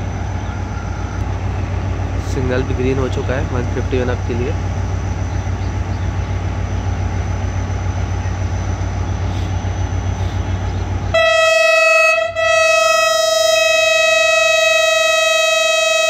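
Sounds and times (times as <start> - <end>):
diesel locomotive idling: 0.0 - 16.0
train horn blast: 11.1 - 16.0.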